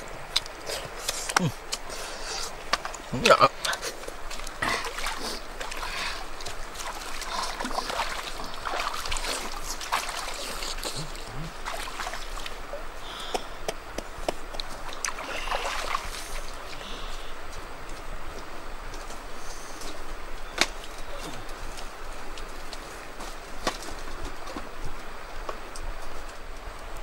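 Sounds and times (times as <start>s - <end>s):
river water splashing and trickling: 0.0s - 27.0s
small splashes and knocks: 2.6s - 16.8s.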